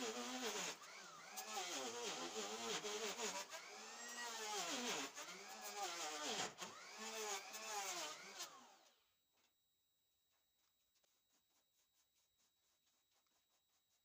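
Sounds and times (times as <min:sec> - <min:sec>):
hand router running: 0:00.0 - 0:08.9.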